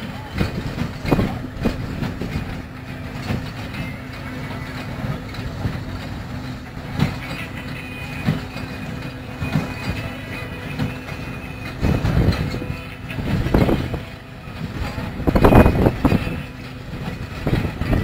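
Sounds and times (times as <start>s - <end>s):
farm machinery droning: 0.0s - 18.0s.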